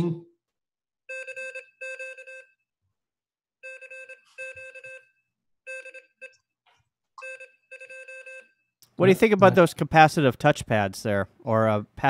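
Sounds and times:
morse code beeps: 1.1 - 2.5, 3.6 - 5.1, 5.7 - 6.4, 7.2 - 8.5.

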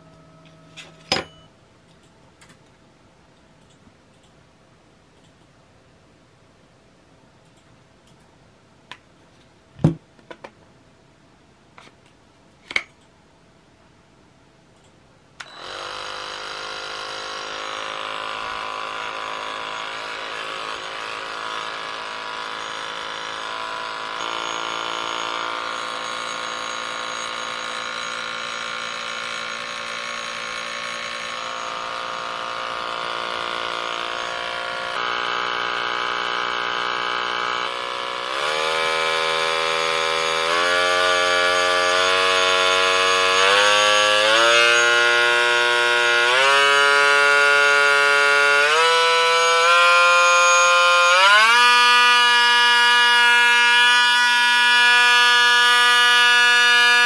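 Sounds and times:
oscillating multi-tool motor whine: 15.4 - 57.0.

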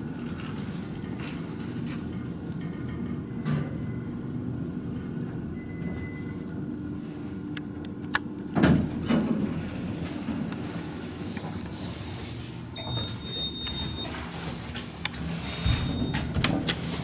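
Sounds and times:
elevator doors sliding open: 8.7 - 17.0
high steady beep: 12.8 - 14.2, 15.6 - 16.3.

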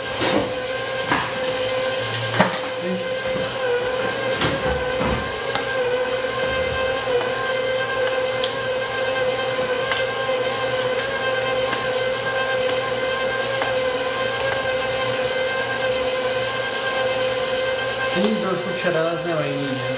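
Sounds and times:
stand mixer motor whine: 0.0 - 19.9.

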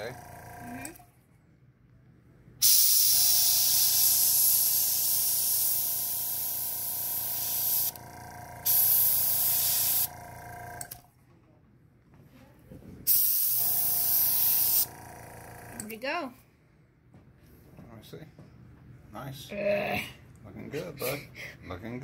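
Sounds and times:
airbrush spraying hiss: 2.6 - 7.9, 8.7 - 10.1, 13.1 - 14.9.

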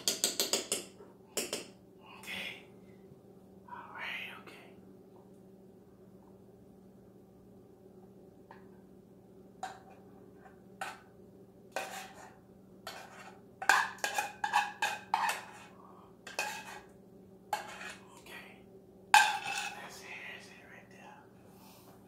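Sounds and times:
faint steady hum: 0.0 - 22.0
utensil scraping a saucepan: 11.7 - 18.0, 19.2 - 19.9.

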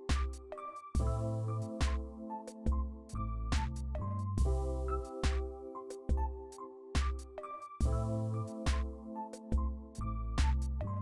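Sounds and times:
electronic background music: 0.0 - 11.0
deep kick drum: 7.8 - 8.1, 9.6 - 9.8.

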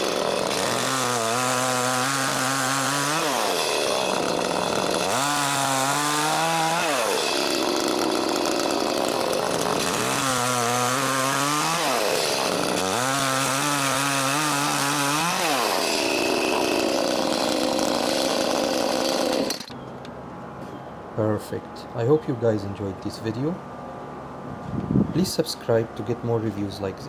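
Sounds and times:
chainsaw cutting wood: 0.0 - 19.8.

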